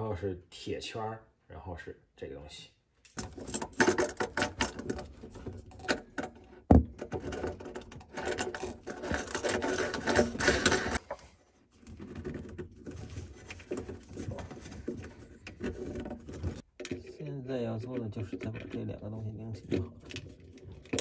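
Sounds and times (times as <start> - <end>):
metal hardware clicking and rattling: 3.0 - 11.0.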